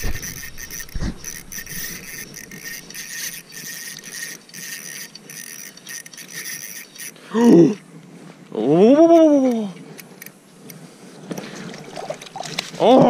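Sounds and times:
fishing reel whirring: 0.0s - 7.8s.

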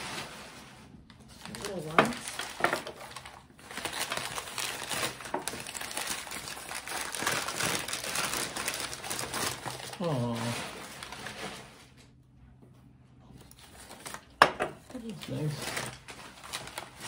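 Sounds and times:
newspaper crinkling and rustling: 0.0s - 12.2s, 13.4s - 17.0s.

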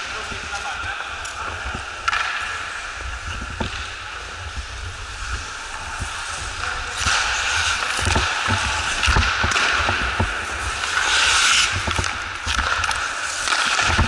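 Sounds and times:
skate blades scraping ice: 0.0s - 14.0s
sticks and pucks clacking: 0.0s - 14.0s.

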